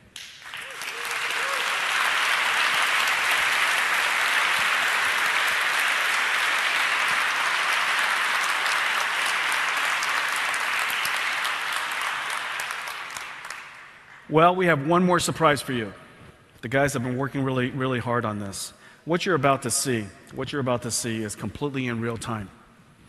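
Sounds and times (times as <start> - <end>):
audience applauding: 0.2 - 14.3.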